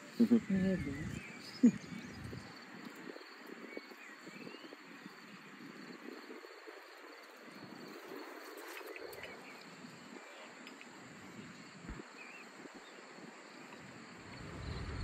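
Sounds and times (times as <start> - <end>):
faint insect trill: 0.0 - 15.0
soft hiss of air: 7.7 - 15.0.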